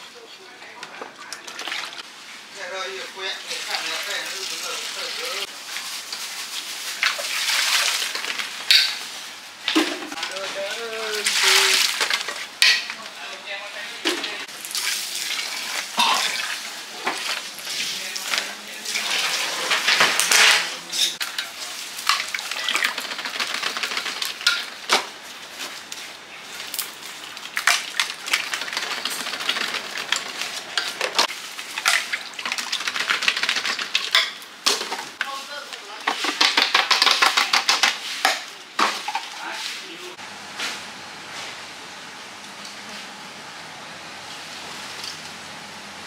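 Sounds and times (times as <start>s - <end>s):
utensils and dishes clinking: 8.1s - 9.1s, 11.2s - 13.2s, 18.2s - 23.1s, 23.9s - 24.9s, 27.6s - 35.1s.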